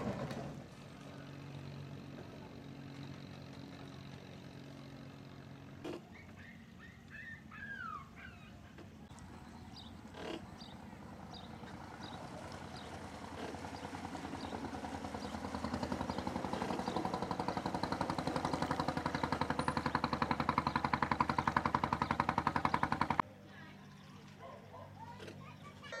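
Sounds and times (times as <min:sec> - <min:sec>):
boat engine puttering: 0:02.6 - 0:23.2.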